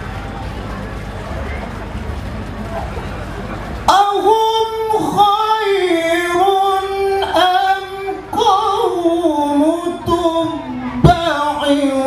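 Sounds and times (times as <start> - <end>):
man chanting melodically: 3.9 - 12.0.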